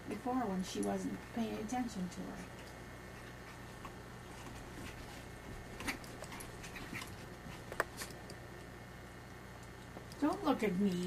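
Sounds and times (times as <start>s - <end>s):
dogs scuffling: 2.6s - 8.3s.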